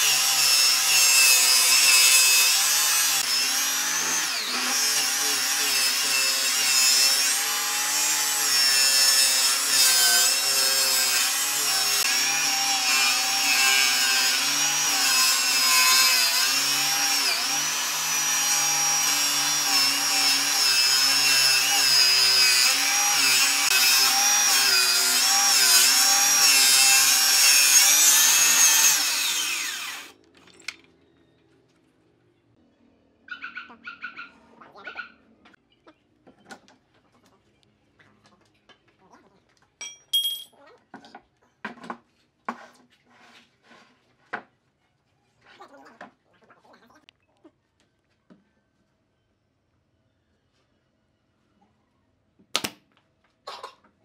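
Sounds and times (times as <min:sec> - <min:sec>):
circular saw cutting wood: 0:00.0 - 0:30.2.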